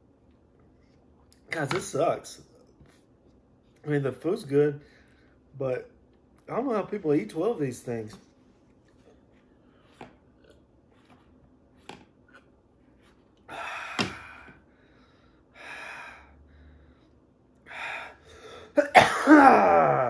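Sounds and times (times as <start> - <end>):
man breathing hard: 13.5 - 18.8.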